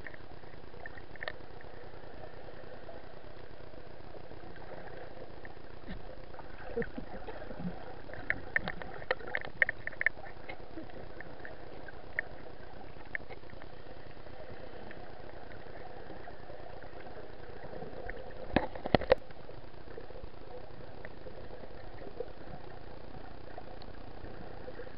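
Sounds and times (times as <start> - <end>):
underwater noise: 0.0 - 24.9.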